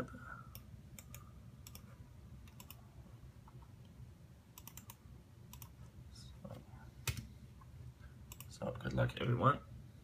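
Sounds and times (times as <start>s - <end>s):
low steady hum: 0.0s - 10.0s
mouse and keyboard clicks: 4.6s - 5.8s.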